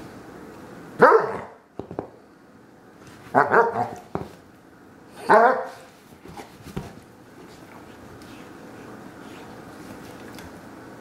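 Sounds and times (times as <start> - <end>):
dog barking: 1.0 - 1.6, 3.3 - 4.1, 5.2 - 5.9.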